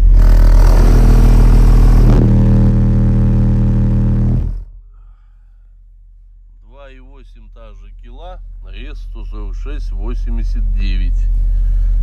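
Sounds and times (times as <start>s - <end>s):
buzzing rattle: 0.0s - 4.8s
subwoofer low test tone: 0.0s - 4.9s.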